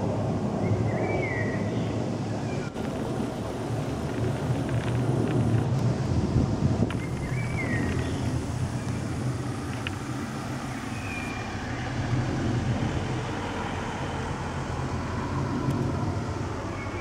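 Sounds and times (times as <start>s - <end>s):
jet aircraft passing overhead: 0.0s - 17.0s
bird chirps: 6.9s - 9.1s, 10.6s - 11.4s.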